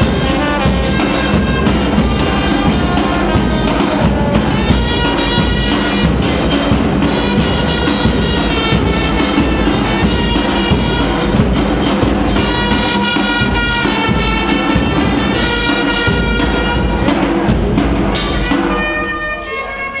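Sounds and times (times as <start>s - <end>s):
trumpets playing held notes: 0.0s - 17.3s, 18.1s - 20.0s
regular drum beat: 0.0s - 19.6s.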